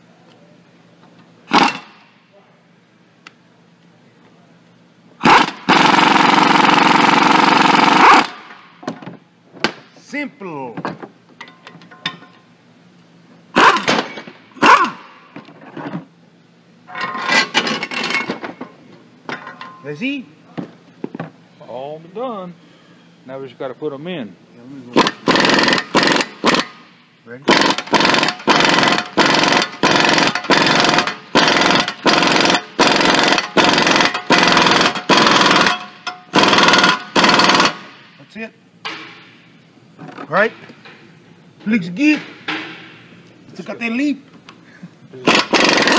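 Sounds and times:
impact wrench hammering: 1.5 - 2.1, 13.6 - 15.5, 25.0 - 26.9, 27.5 - 38.2, 38.8 - 39.5, 42.1 - 43.2, 45.2 - 45.9.

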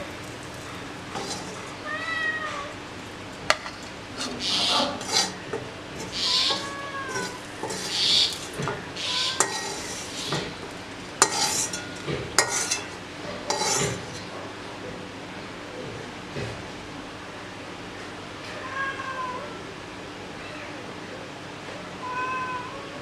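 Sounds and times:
metal spatula scraping pan: 1.1 - 1.8, 3.5 - 14.4.

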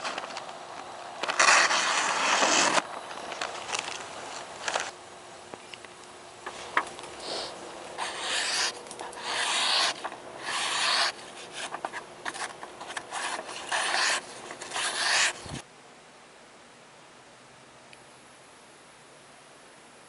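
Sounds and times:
faint steady hiss: 0.0 - 20.0
knife slicing paper: 1.2 - 2.8, 6.7 - 15.6.

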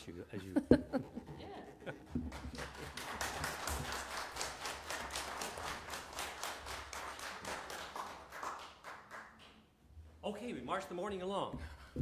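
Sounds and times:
hands clapping in applause: 2.2 - 9.7.

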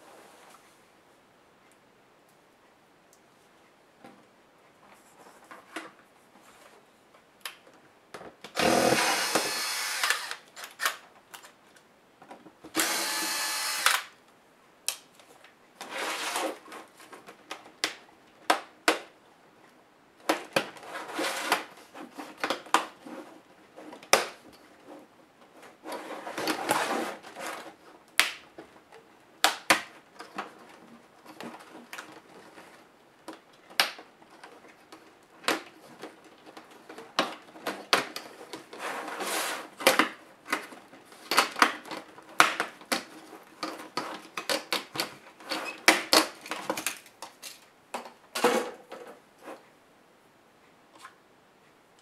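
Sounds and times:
electric screwdriver whirring: 8.6 - 10.4, 12.8 - 14.1.

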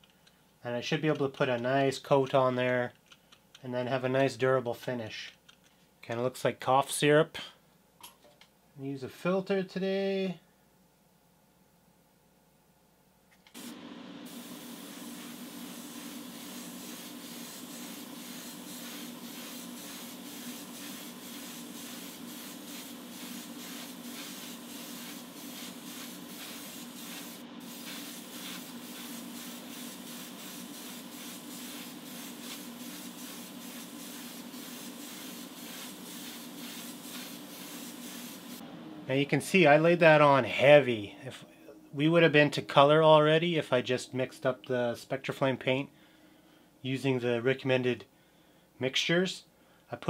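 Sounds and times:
steady low hum: 10.5 - 42.7
airbrush hissing: 13.6 - 38.6.

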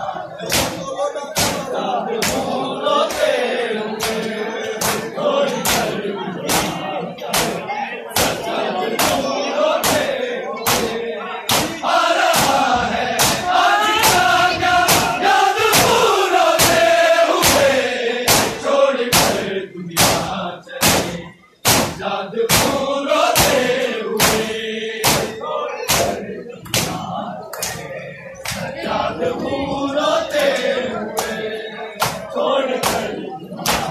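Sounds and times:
crowd chanting: 0.0 - 33.9
hands slapping chests: 0.4 - 0.8, 4.0 - 5.9, 6.5 - 7.6, 9.0 - 9.2, 10.7 - 12.6, 13.2 - 14.2, 24.2 - 25.3, 25.9 - 27.8, 28.4 - 28.7, 32.0 - 33.9.

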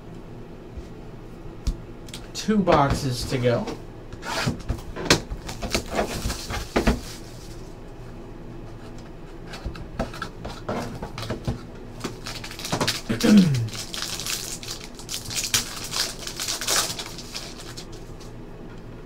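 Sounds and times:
foil wrapper crinkling and tearing: 5.4 - 7.7, 11.9 - 18.3.

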